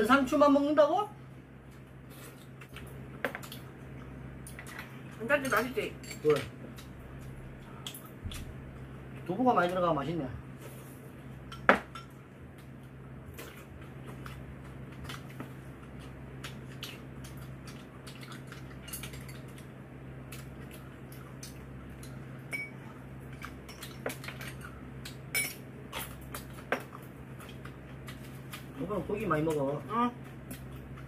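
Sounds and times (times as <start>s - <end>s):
low steady hum: 0.0s - 31.0s.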